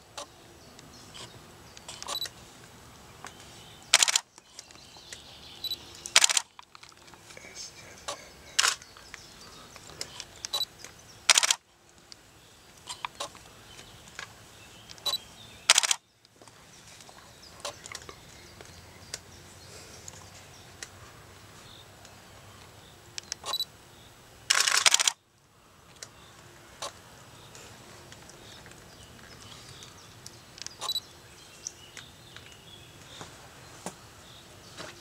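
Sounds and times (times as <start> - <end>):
camera shutter clicks: 3.9 - 4.3, 6.1 - 6.6, 8.6 - 8.8, 11.3 - 11.6, 15.0 - 16.0, 24.5 - 25.2
faint ticks and rustles: 24.9 - 31.0.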